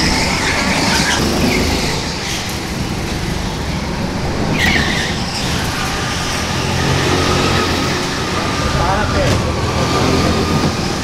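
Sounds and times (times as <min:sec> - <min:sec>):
tyre squeal: 0:00.0 - 0:03.7, 0:04.4 - 0:09.3
go-kart engines droning: 0:00.0 - 0:11.0.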